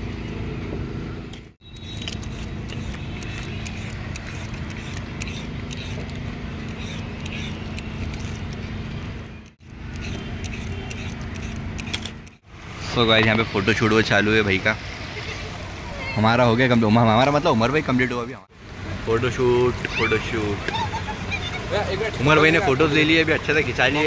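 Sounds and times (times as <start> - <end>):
traffic rumble: 0.0 - 24.0
scraping and clicking: 1.3 - 12.4.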